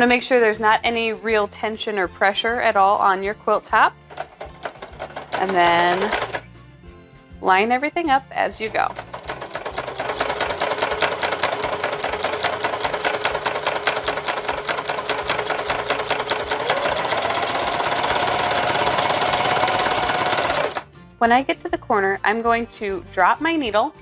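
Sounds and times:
sewing machine motor hum: 0:04.1 - 0:06.5, 0:08.8 - 0:20.8
sewing machine needle clatter: 0:04.1 - 0:06.5, 0:08.9 - 0:20.8.

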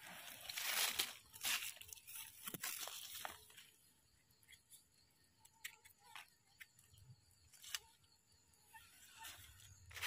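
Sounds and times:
clicks and rustles in dry leaves: 0:00.0 - 0:03.8, 0:09.0 - 0:10.0.

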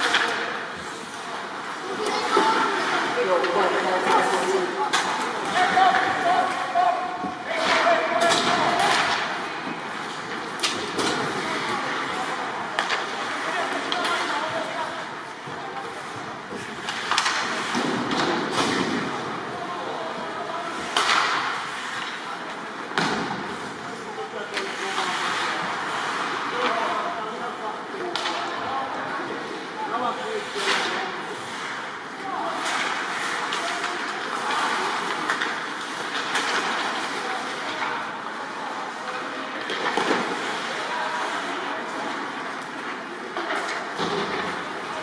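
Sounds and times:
hockey sticks and puck clacking: 0:00.0 - 0:19.5, 0:20.2 - 0:26.9, 0:28.0 - 0:29.6, 0:30.4 - 0:45.0
voices: 0:00.0 - 0:45.0
puck and sticks knocking on boards: 0:20.9 - 0:22.2, 0:39.6 - 0:40.4.

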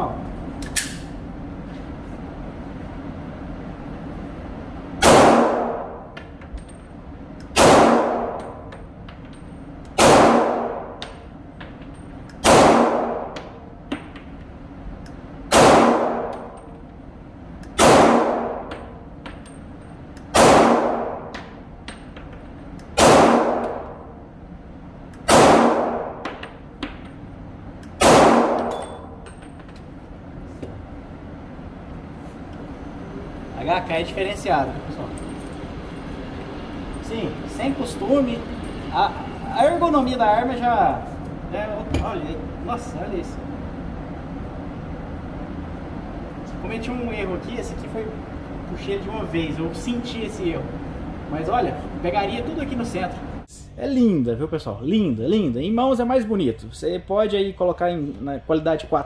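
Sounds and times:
pistol shots: 0:05.0 - 0:06.1, 0:07.5 - 0:08.6, 0:10.0 - 0:11.0, 0:12.4 - 0:13.4, 0:15.5 - 0:16.6, 0:17.8 - 0:19.0, 0:20.3 - 0:21.4, 0:23.0 - 0:24.0, 0:25.2 - 0:26.4, 0:28.0 - 0:29.0.

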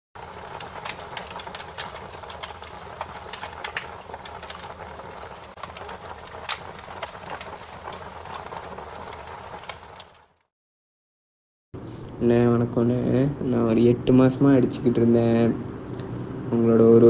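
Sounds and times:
crackles and clicks: 0:00.2 - 0:10.5.

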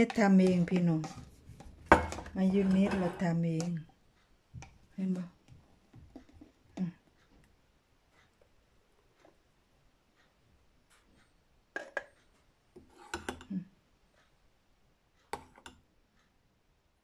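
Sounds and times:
metal spoon scraping blender jar: 0:00.0 - 0:03.7.

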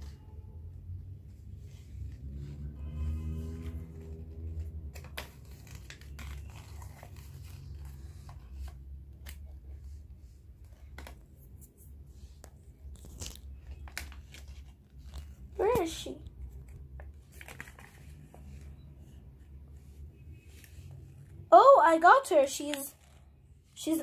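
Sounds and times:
foil wrapper crinkling and tearing: 0:12.8 - 0:15.2.

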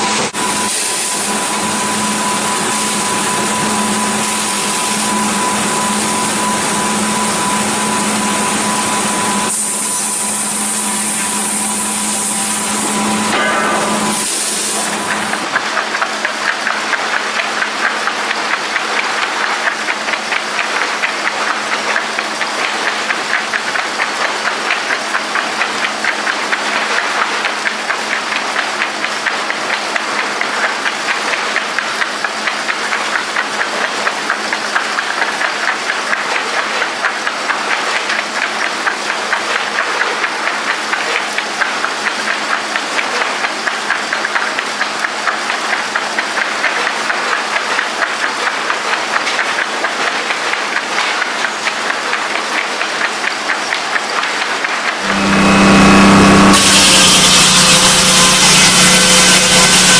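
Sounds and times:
machinery hum: 0:00.0 - 0:15.6, 0:55.0 - 0:59.9
sawmill machinery clattering: 0:00.0 - 0:59.9.

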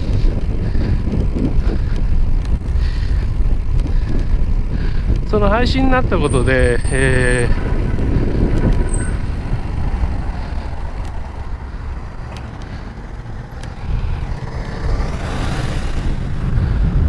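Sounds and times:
wind rumbling on microphone: 0:00.0 - 0:17.0
faint clicks: 0:12.2 - 0:12.8, 0:13.5 - 0:13.8.

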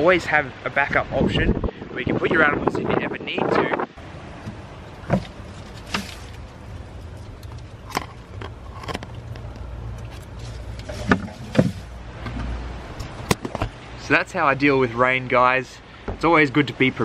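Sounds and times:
low steady rumble: 0:01.3 - 0:16.9
soft knocks and rustles: 0:07.3 - 0:12.6.

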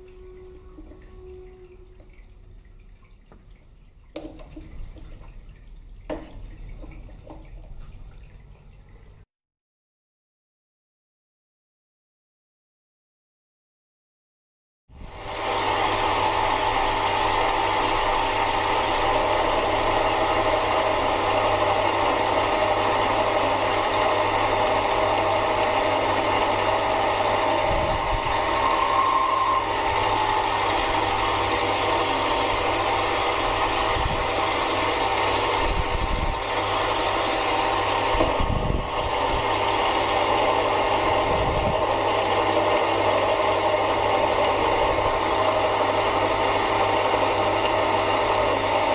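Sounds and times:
lathe humming: 0:15.3 - 0:35.6.

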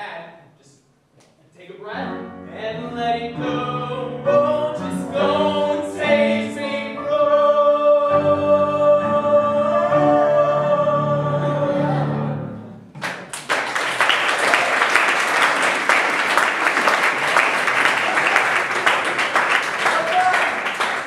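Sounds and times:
singers holding a chord: 0:02.8 - 0:12.7
audience applause: 0:13.0 - 0:21.0.

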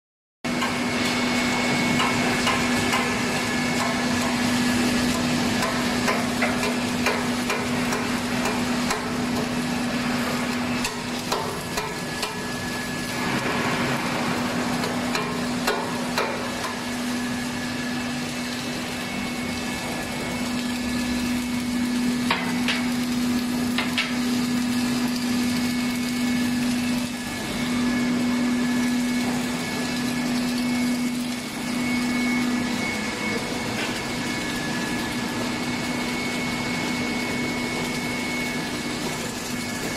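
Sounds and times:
welding machine humming: 0:00.5 - 0:39.9.

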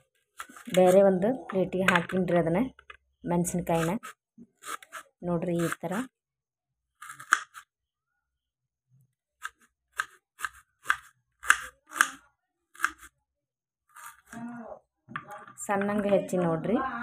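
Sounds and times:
knife slicing on wooden board: 0:03.8 - 0:06.1, 0:07.0 - 0:07.7.

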